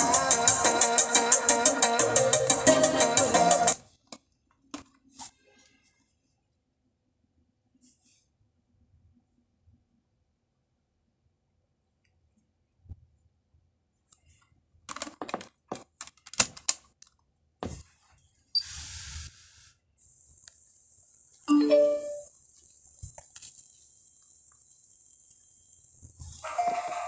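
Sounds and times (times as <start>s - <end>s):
electronic chime: 21.5s - 22.3s.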